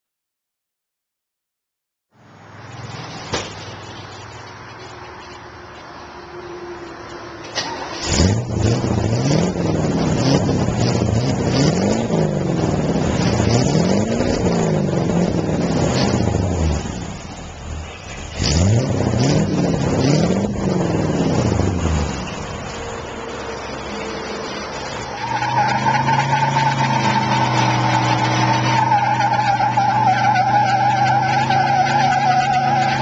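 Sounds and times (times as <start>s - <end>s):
pickup engine revving: 7.6s - 33.0s.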